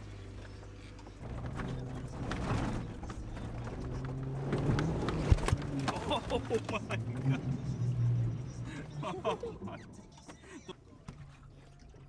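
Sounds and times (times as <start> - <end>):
knocks and rattles over rough ground: 0.0 - 9.4
vehicle engine hum from cab: 0.0 - 12.0.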